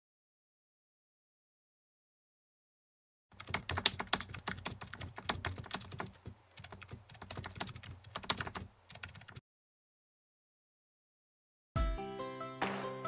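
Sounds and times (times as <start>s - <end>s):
keyboard typing: 3.4s - 9.4s.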